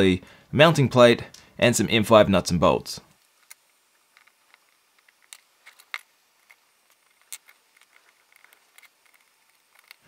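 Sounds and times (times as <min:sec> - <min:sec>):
small metal parts clicking: 0:03.3 - 0:10.0.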